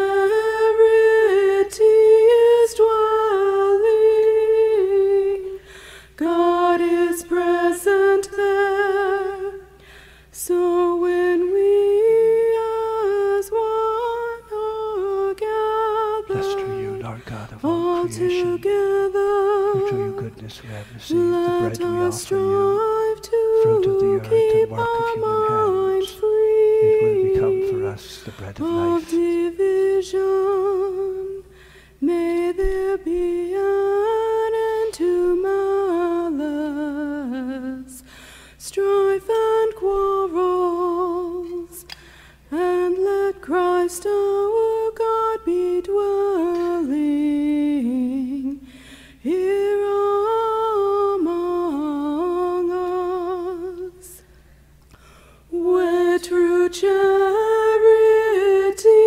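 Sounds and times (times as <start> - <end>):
person singing a hymn: 10.4 - 31.4.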